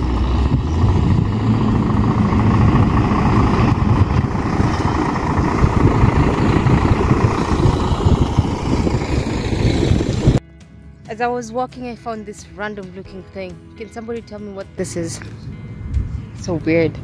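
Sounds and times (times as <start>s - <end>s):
wind buffeting microphone: 0.0s - 10.4s, 15.0s - 17.0s.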